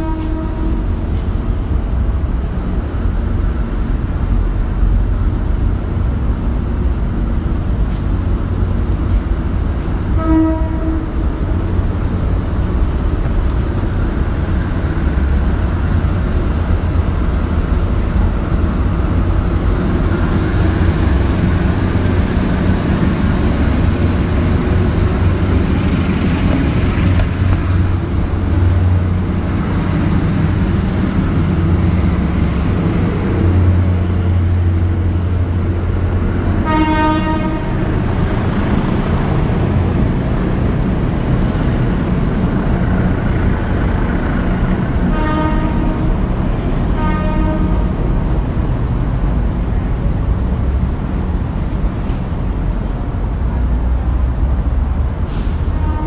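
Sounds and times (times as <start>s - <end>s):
train horn: 0.0s - 1.0s, 10.1s - 11.2s, 36.6s - 37.8s, 45.0s - 46.2s, 46.9s - 48.0s, 55.8s - 56.0s
diesel train engine drone: 0.0s - 56.0s.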